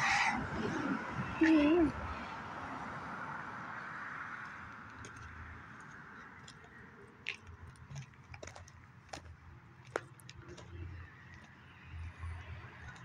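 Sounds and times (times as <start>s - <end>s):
vehicle passing: 0.0s - 7.0s
faint traffic: 0.0s - 13.0s
footsteps on gravel: 4.4s - 12.2s.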